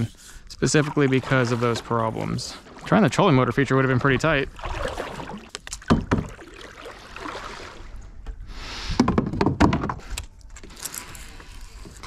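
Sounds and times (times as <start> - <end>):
water splashing: 0.6 - 8.1.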